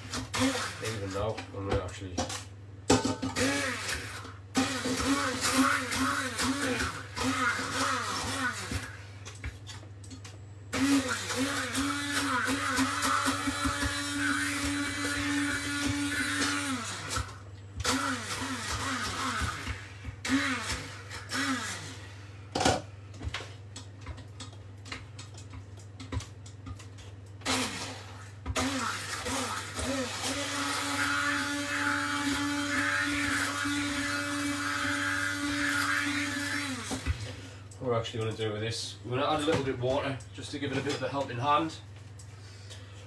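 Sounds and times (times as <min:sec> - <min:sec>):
hand blender motor whine: 0:00.0 - 0:01.2, 0:03.4 - 0:09.0, 0:10.7 - 0:22.2, 0:27.4 - 0:37.5.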